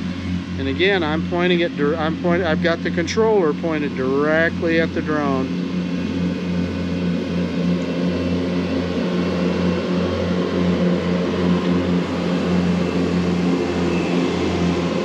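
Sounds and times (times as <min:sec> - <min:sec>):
motor humming: 0:00.0 - 0:15.0.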